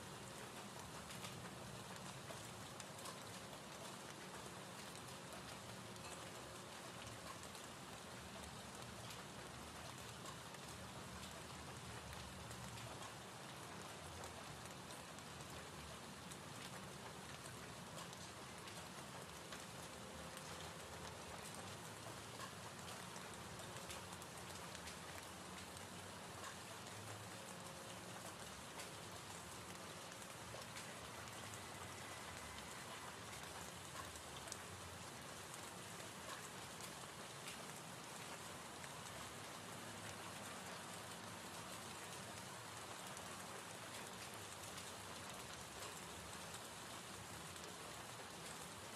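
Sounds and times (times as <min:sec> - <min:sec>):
gentle rain falling: 0:00.0 - 0:48.9
raindrop ticks: 0:00.1 - 0:48.9.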